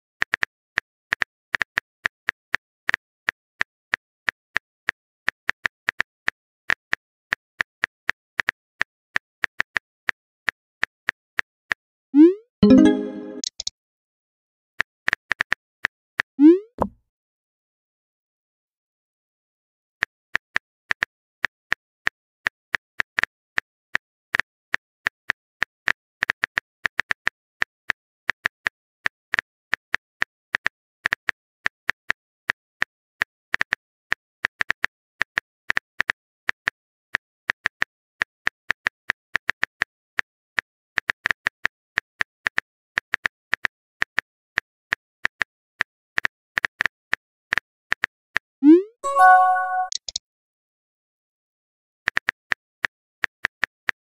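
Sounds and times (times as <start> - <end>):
message sent pop and tone: 12.2 - 13.7, 48.6 - 50.2
phone keyboard typing clicks: 12.6 - 13.7, 49.1 - 50.2.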